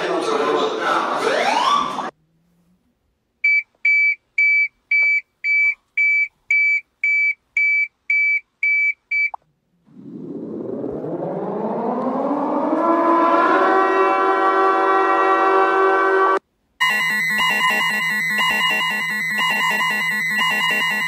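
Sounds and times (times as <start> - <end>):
siren winding up: 1.2 - 2.1, 10.0 - 14.4, 16.8 - 21.0
microwave oven beeping: 16.8 - 21.0.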